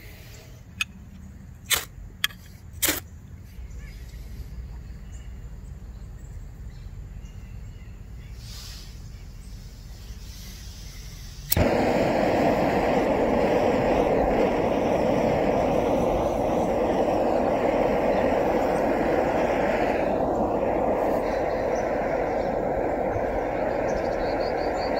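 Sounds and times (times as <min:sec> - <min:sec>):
gas burner hissing: 0:00.0 - 0:00.9, 0:01.7 - 0:03.0, 0:08.3 - 0:24.9.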